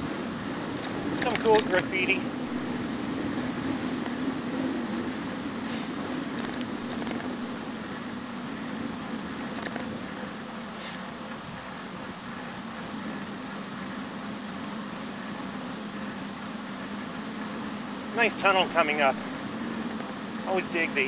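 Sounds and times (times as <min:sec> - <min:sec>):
bicycle rolling on pavement: 0:00.0 - 0:21.0
wind: 0:00.0 - 0:21.0
faint clicks and rattles: 0:06.3 - 0:21.0.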